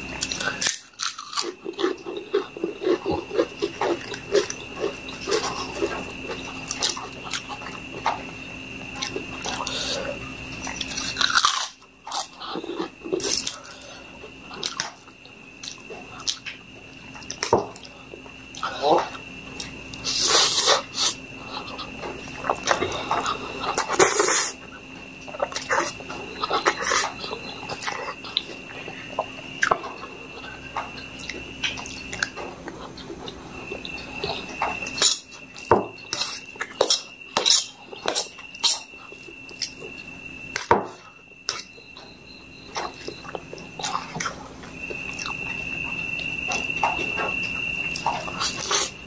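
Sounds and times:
slurping and chewing noodles: 0.0 - 8.3, 8.9 - 15.0, 17.2 - 40.6, 42.7 - 49.0
thin high tone hum: 0.0 - 49.0.

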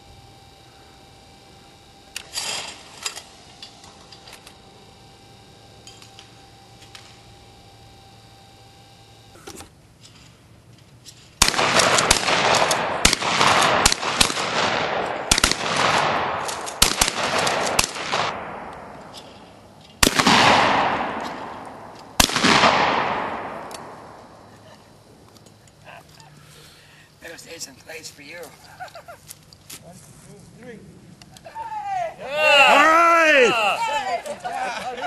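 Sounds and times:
shotgun shots with echo: 11.4 - 18.9, 20.0 - 24.2.

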